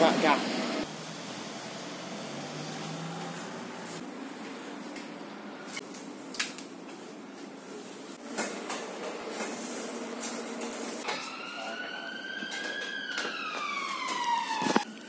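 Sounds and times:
police siren wailing: 11.0s - 15.0s.

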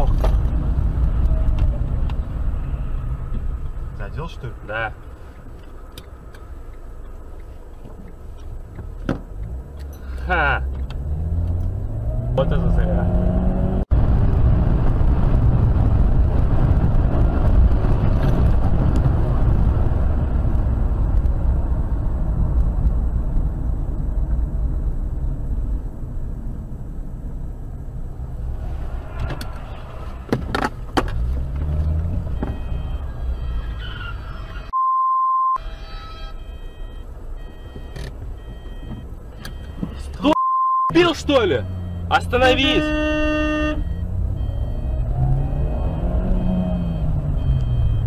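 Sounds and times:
in-car road and engine rumble: 0.0s - 48.0s
short high beep: 34.7s - 38.9s, 39.5s - 45.0s.

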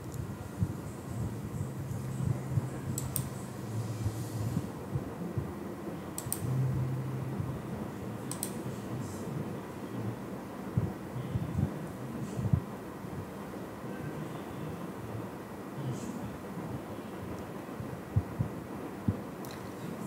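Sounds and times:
low background hum: 0.0s - 20.0s
computer mouse clicking: 2.9s - 3.4s, 6.2s - 6.5s, 8.3s - 8.6s.

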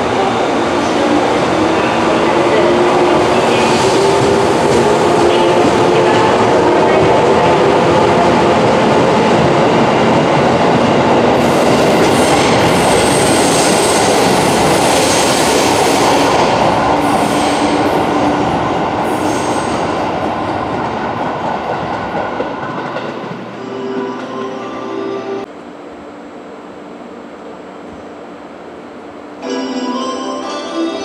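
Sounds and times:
train wheels on rail: 0.0s - 23.6s.

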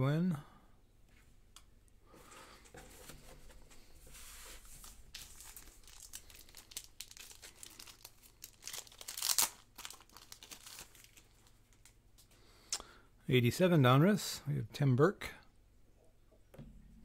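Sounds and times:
baseball cards rustling and crinkling: 2.1s - 12.4s.

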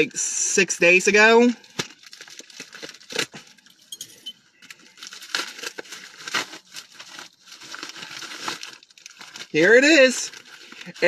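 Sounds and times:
plastic bag crinkling and tearing: 1.4s - 3.8s, 4.6s - 11.0s.

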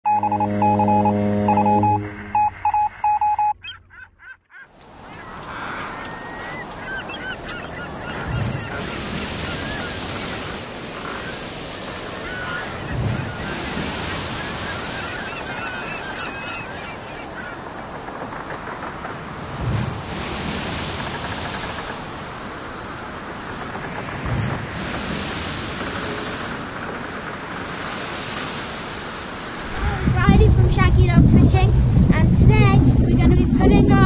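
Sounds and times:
sea waves washing: 0.1s - 3.5s, 4.8s - 34.0s
electronic beeping tones: 0.1s - 3.8s
seabirds calling: 0.1s - 31.5s.

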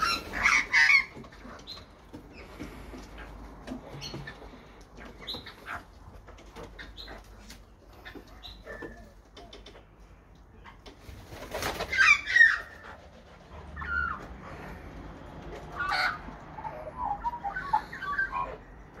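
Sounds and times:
magpies calling and warbling: 0.0s - 9.2s, 11.6s - 19.0s.

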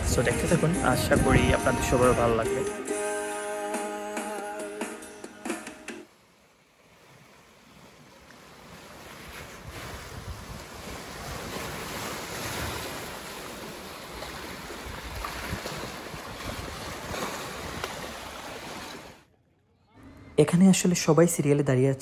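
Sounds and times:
lake waves washing against shore: 6.0s - 19.3s
wind buffeting microphone: 9.2s - 18.2s.

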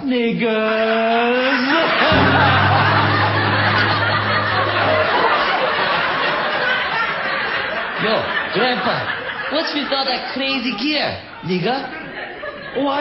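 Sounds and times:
audience laughter: 1.5s - 10.4s, 11.6s - 13.0s
low sustained tone: 2.2s - 6.2s.

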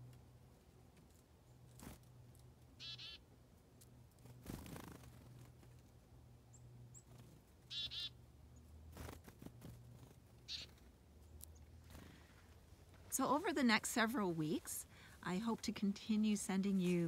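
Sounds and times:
chickadee calling: 2.8s - 3.2s, 7.7s - 8.2s.

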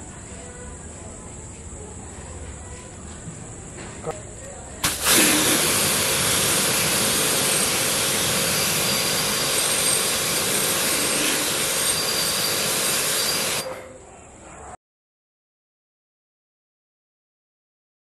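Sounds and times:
water spray hissing against bottle: 4.8s - 13.8s.

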